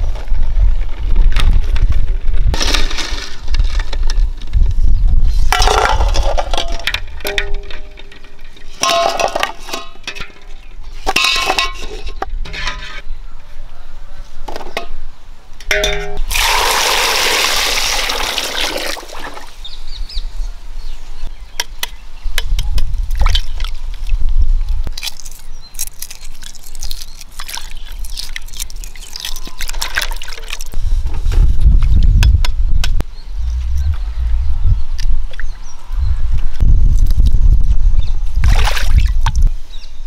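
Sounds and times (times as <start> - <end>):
metal utensils clinking: 5.6 - 12.1
water pouring: 16.3 - 19.5, 26.6 - 30.7.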